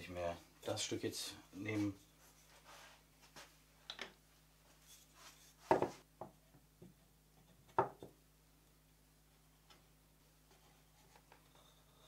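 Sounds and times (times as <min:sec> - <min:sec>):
wooden pieces knocking and scraping: 0:05.6 - 0:06.3.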